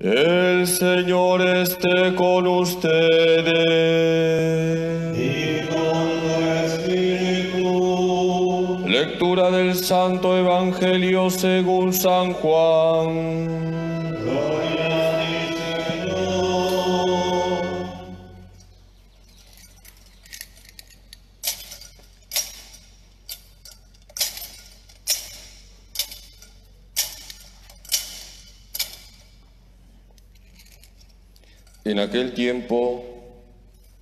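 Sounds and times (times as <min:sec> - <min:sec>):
sung chant: 0:00.0 - 0:18.5
censer chains clinking: 0:17.6 - 0:34.0.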